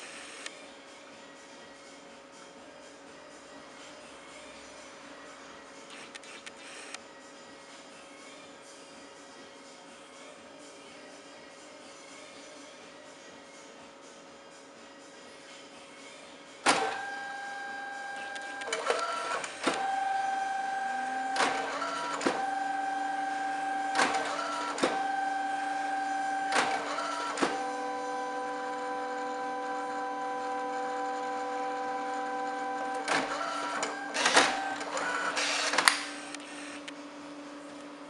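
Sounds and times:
printer clatter ejecting print: 16.7s - 17.1s, 18.2s - 27.8s, 32.9s - 36.9s
printer motor whine: 16.7s - 38.0s.

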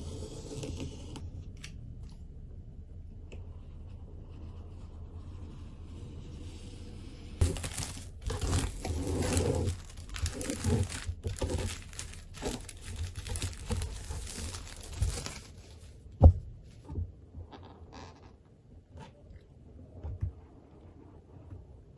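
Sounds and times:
plastic shrink-wrap tearing: 7.4s - 15.6s.

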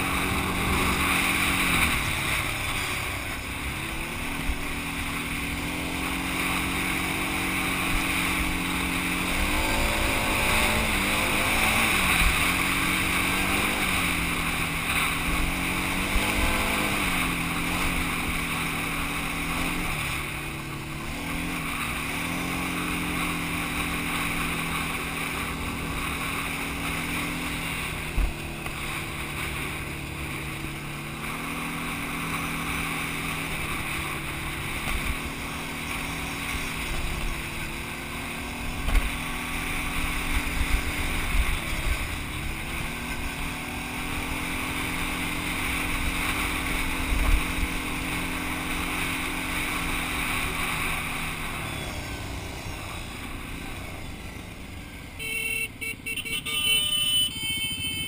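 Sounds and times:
quad bike engine revving: 0.0s - 58.0s.

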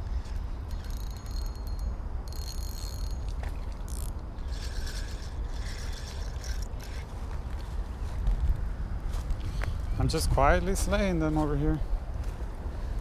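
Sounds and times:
steady low rumble: 0.0s - 13.0s
fishing reel gears whirring: 0.2s - 7.1s.

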